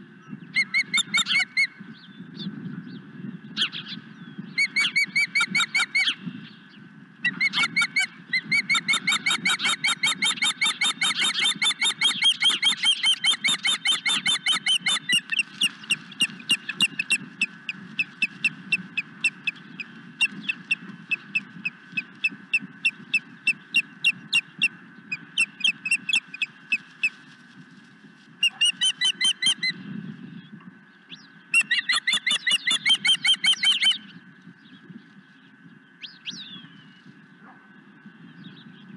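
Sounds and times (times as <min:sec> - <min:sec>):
osprey high whistled chirps: 0:28.4 - 0:29.8, 0:31.1 - 0:34.1.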